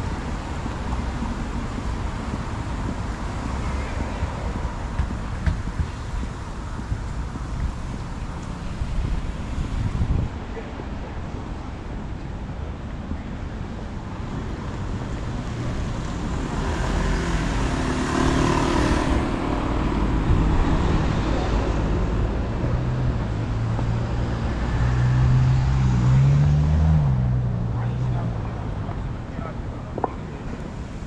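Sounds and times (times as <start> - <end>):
low rumble of cars: 0.0 - 31.0
vehicle passing: 15.6 - 28.8.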